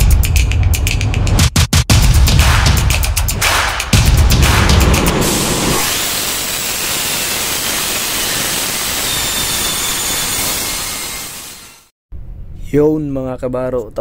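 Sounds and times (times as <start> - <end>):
engine turning over: 5.2 - 11.9
compressed air hissing: 5.8 - 11.9.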